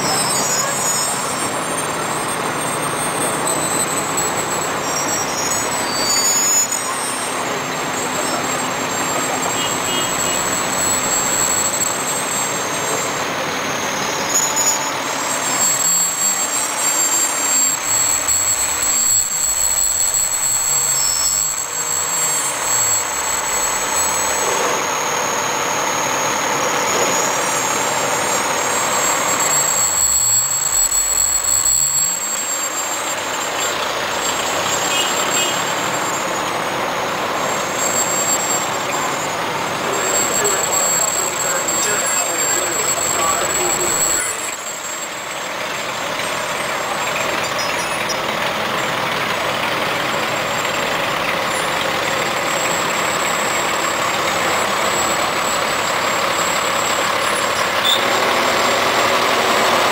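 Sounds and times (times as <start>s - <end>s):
fire engine driving past: 0.0s - 59.9s
trucks driving: 0.0s - 59.9s.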